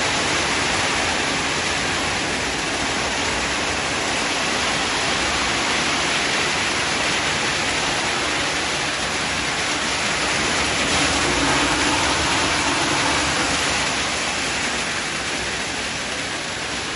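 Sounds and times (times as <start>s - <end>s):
spraying and falling water: 0.0s - 16.9s
turning studded drum: 4.2s - 16.8s.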